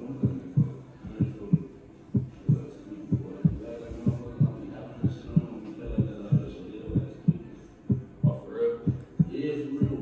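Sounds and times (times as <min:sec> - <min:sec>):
deep bass thumps in pairs: 0:02.2 - 0:10.0.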